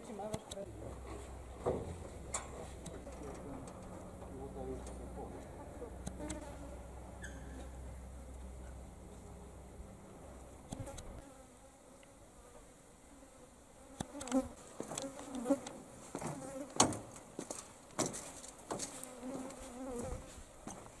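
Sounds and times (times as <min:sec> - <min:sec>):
flies buzzing: 0:00.0 - 0:20.8
footsteps on grated walkway: 0:16.1 - 0:21.0.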